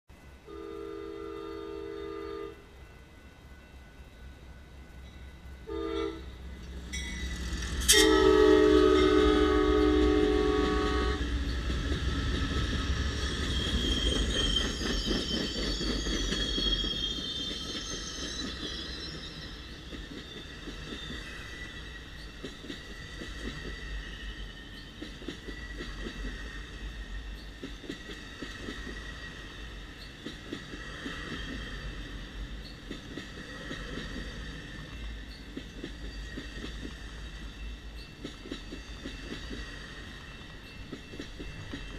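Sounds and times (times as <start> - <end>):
train engines and wheels rumbling: 0.1 - 41.9
train horn blasts: 0.4 - 2.7, 5.6 - 6.4, 7.6 - 11.4
train cars clickety-clack: 5.6 - 41.9
high squeal: 11.4 - 26.0.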